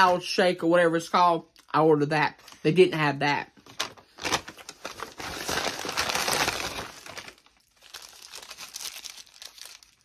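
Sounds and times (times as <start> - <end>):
paper bag rustling and crinkling: 3.6 - 10.0.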